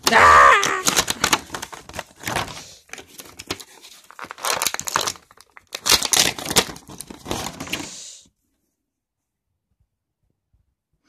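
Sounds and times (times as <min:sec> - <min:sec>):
plastic packaging crinkling and tearing: 0:00.0 - 0:08.0.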